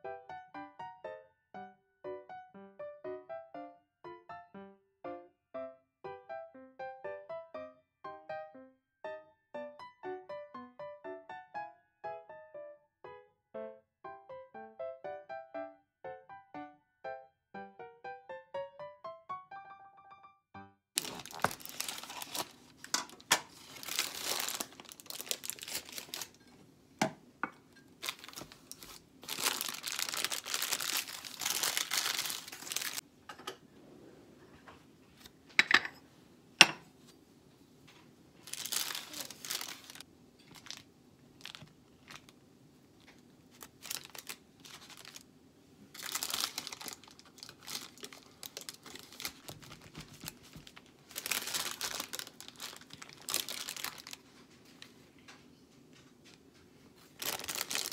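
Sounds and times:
baking paper crinkling: 21.0s - 26.6s, 27.6s - 33.0s, 38.4s - 42.4s, 43.0s - 45.3s, 45.9s - 55.3s, 56.2s - 57.9s.

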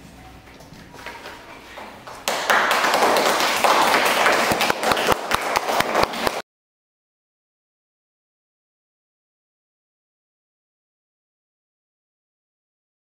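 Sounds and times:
children clapping: 1.8s - 6.4s.

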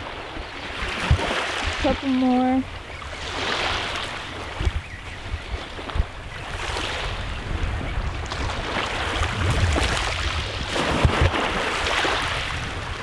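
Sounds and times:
small waves lapping: 0.0s - 13.0s
wind buffeting microphone: 0.0s - 13.0s.

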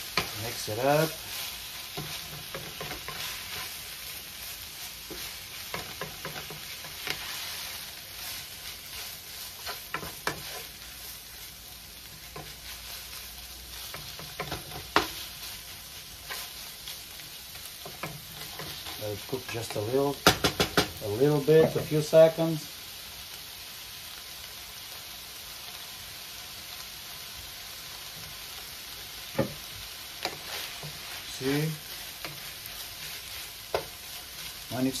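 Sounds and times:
food sizzling in frying pan: 0.0s - 35.0s
wooden spatula scraping pan: 0.1s - 3.9s, 4.7s - 10.8s, 13.8s - 15.6s, 17.8s - 19.9s, 29.4s - 35.0s.

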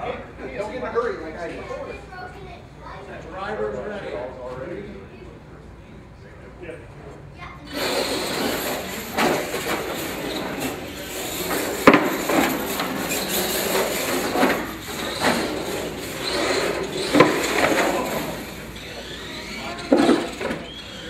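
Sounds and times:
toy trucks rushing on carpet: 7.7s - 21.0s
sharp knocks and clatters: 8.2s - 18.5s.

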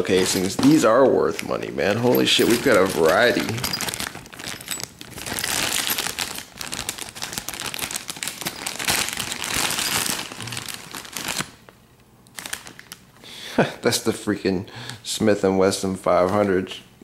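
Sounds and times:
plastic bag crinkling: 0.0s - 11.7s, 12.3s - 13.0s.

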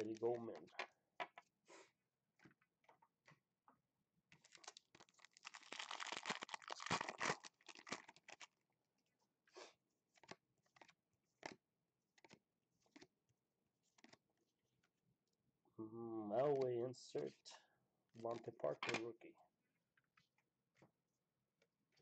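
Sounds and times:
light crinkles and ticks: 4.3s - 8.5s, 10.1s - 11.6s, 12.2s - 13.1s, 13.8s - 14.2s
foil wrapper tearing and crinkling: 4.4s - 8.6s.

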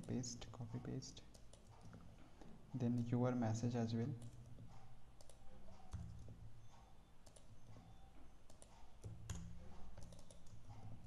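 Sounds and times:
computer keyboard clicks: 1.2s - 2.0s, 4.2s - 4.5s, 5.2s - 6.3s, 7.2s - 10.8s
computer mouse clicks: 1.2s - 2.0s, 4.2s - 10.9s.

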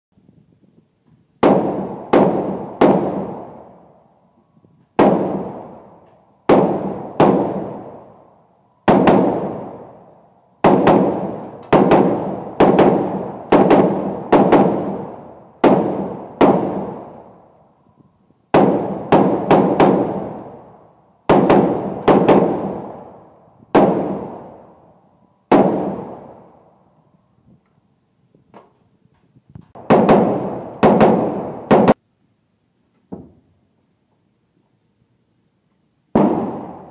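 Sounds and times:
echoing gunshots: 1.4s - 4.0s, 5.0s - 17.5s, 18.5s - 26.7s, 29.7s - 32.0s, 36.1s - 36.9s.

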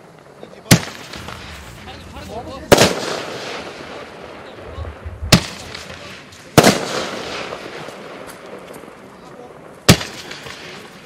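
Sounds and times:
firework shell bursts: 0.7s - 4.0s.

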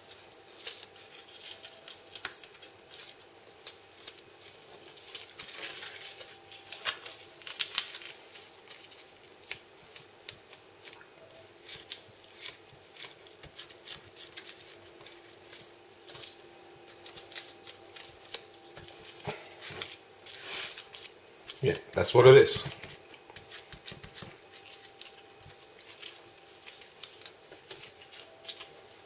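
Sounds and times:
dried seaweed crackling: 0.0s - 22.2s, 24.4s - 29.0s
faint steady high tone: 11.0s - 11.8s, 27.6s - 29.0s.

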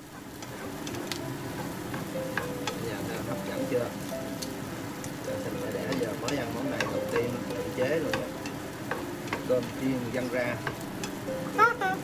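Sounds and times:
spatula scraping frying pan: 0.0s - 2.8s
food sizzling: 0.0s - 12.0s
spatula clicking against pan: 10.6s - 11.2s.

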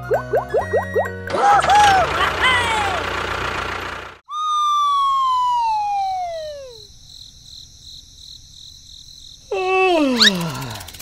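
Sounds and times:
stepped falling tone: 0.0s - 6.9s
cartoon falling whistle: 4.3s - 6.9s
crickets chirping: 4.6s - 11.0s.

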